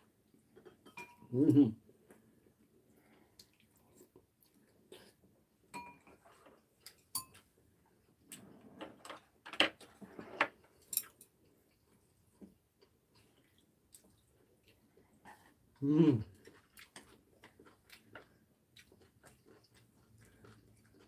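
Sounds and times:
soft chewing: 0:00.0 - 0:09.0, 0:09.8 - 0:21.0
utensils clinking on ceramic bowls: 0:00.7 - 0:01.3, 0:05.7 - 0:06.2, 0:06.8 - 0:07.4.

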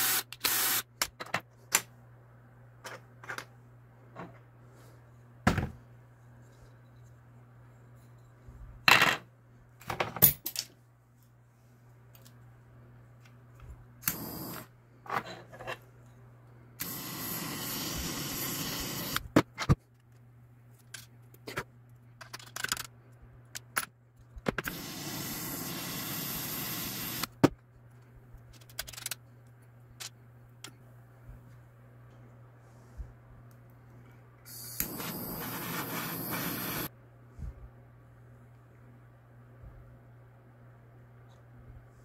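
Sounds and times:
torch click: 0:14.0 - 0:14.6, 0:16.8 - 0:19.3, 0:34.6 - 0:36.9
butane torch hissing: 0:14.1 - 0:14.6, 0:16.8 - 0:19.2, 0:24.7 - 0:27.3, 0:34.5 - 0:36.9
plastic and metal parts clicking: 0:28.5 - 0:29.2.

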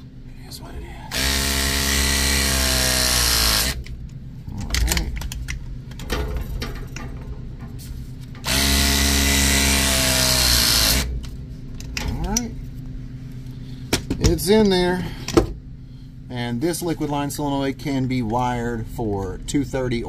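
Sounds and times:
press tool motor whine: 0:01.1 - 0:03.9, 0:08.4 - 0:11.1.

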